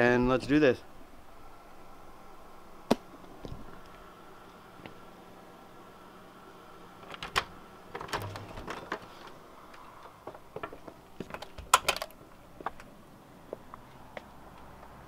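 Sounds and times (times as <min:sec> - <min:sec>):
door locks clicking and clunking: 0:07.0 - 0:09.4.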